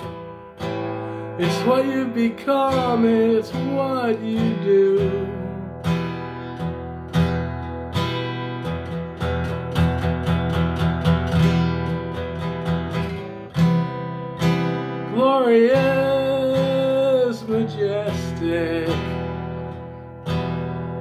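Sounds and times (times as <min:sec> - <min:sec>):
acoustic guitar strumming: 0:00.0 - 0:21.0
man singing: 0:01.4 - 0:06.0, 0:15.0 - 0:19.8.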